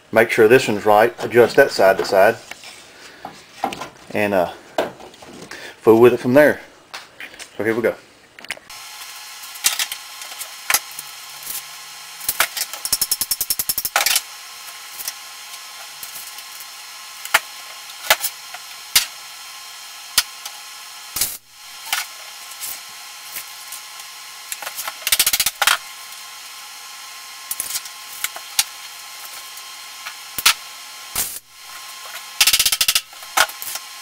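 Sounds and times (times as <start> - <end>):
welder crackling bursts: 8.7 - 34.0
welder hum: 8.7 - 34.0.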